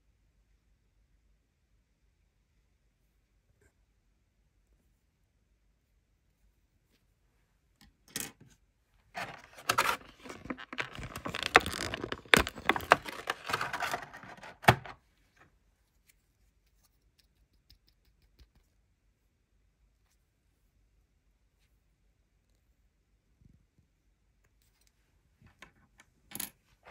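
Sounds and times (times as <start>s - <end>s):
plastic packaging crinkling: 9.2s - 15.0s.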